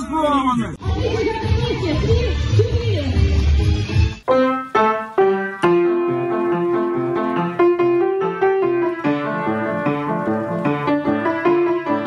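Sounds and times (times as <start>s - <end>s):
grand piano melody: 4.2s - 12.0s.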